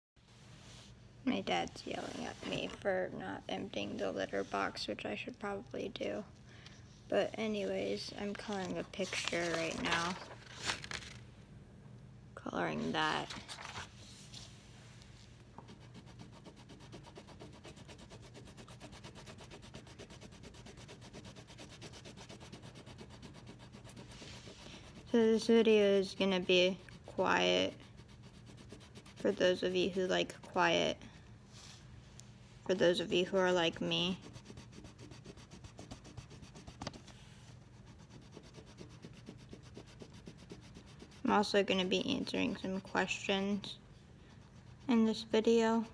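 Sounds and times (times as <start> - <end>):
pencil rubbing on paper: 15.6 - 30.9, 32.7 - 43.7, 44.3 - 45.9.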